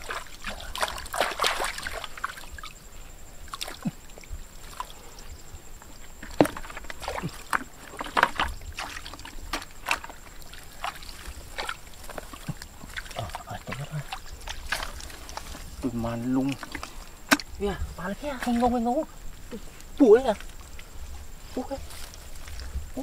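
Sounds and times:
bucket scooping water: 0:00.0 - 0:02.7, 0:06.1 - 0:17.6
muddy water sloshing and splashing: 0:00.0 - 0:23.0.

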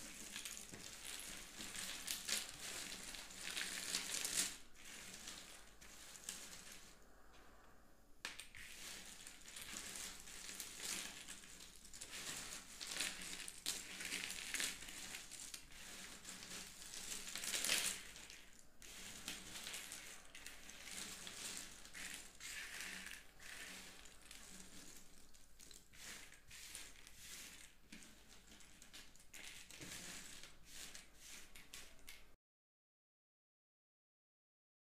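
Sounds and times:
puzzle pieces rustling on table: 0:00.0 - 0:06.9, 0:08.3 - 0:32.4.

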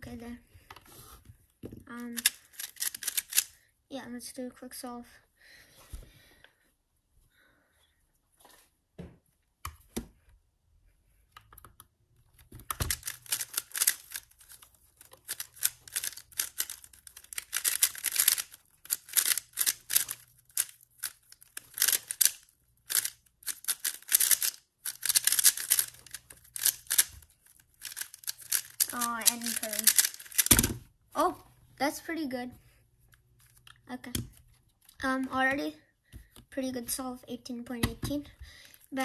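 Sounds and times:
puzzle cube plastic layers clicking: 0:02.0 - 0:03.6, 0:11.4 - 0:30.9.

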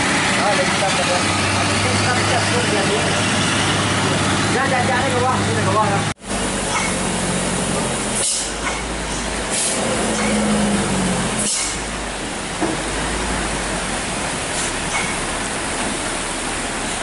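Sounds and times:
diesel truck engine climbing: 0:00.0 - 0:17.0
rain and wet road hiss: 0:06.2 - 0:17.0
short air hisses: 0:08.2 - 0:10.5, 0:11.4 - 0:11.9.

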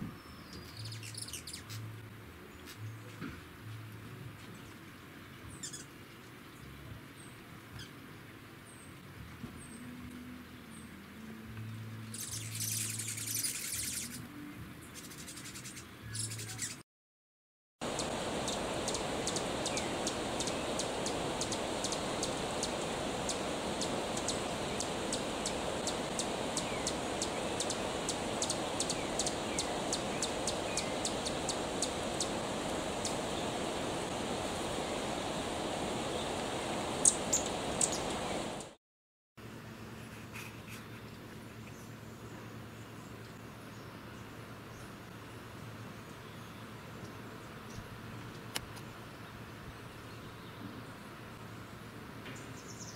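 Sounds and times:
birds chirping: 0:05.5 - 0:05.9, 0:17.8 - 0:38.8
steady rushing background: 0:17.8 - 0:38.8.

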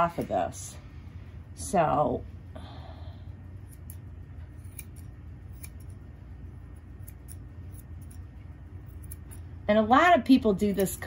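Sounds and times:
grooming shears snipping hair: 0:03.5 - 0:11.0.

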